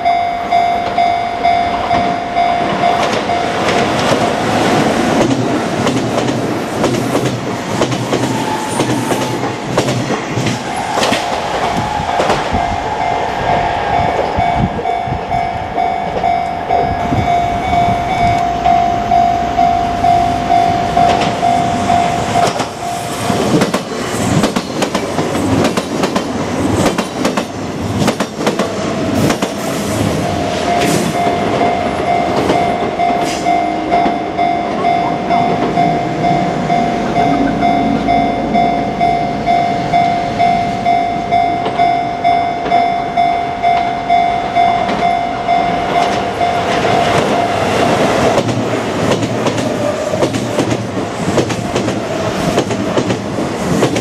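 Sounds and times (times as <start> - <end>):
level-crossing alarm ringing: 0.0 - 5.2, 10.6 - 24.9, 28.4 - 48.4
train passing with wheel clatter: 0.0 - 54.0.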